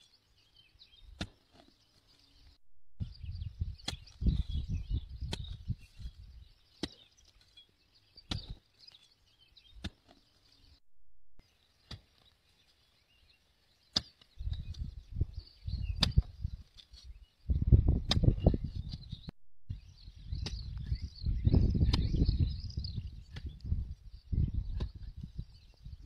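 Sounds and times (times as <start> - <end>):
hoe chopping into soil: 1.1 - 1.7, 8.2 - 8.7, 9.8 - 10.2, 13.9 - 14.9, 16.0 - 17.0.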